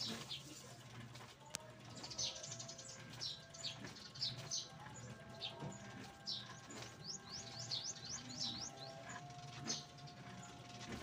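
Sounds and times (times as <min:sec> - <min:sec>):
small birds chirping: 0:01.4 - 0:11.0.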